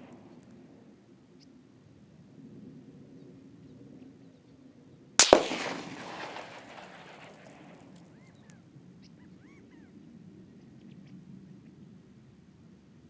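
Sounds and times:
rifle shot with echo: 5.2 - 8.2.

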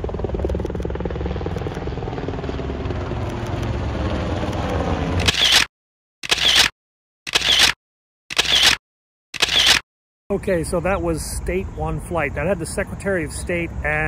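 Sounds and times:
helicopter flying past: 0.0 - 5.7
camera shutter clicks: 4.5 - 6.7, 7.3 - 8.8, 9.4 - 9.8.

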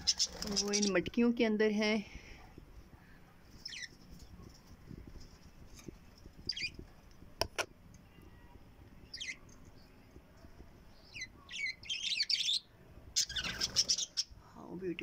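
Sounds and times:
parrots chirping and chattering: 0.0 - 1.0, 3.6 - 6.9, 9.0 - 9.8, 11.0 - 14.4.

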